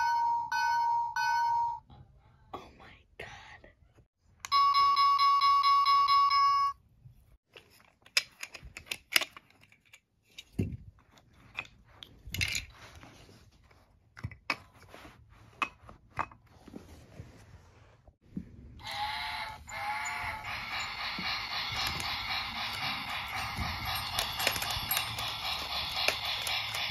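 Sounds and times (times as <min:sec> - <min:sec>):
electronic warning bell ringing: 0:04.5 - 0:06.8, 0:18.8 - 0:26.9
wooden toy track pieces clicking: 0:19.8 - 0:26.9.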